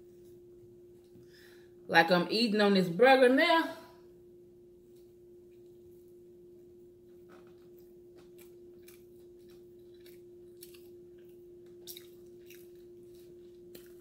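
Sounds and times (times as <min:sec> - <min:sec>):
steady low hum: 0:00.0 - 0:14.0
person chewing wetly: 0:07.4 - 0:14.0.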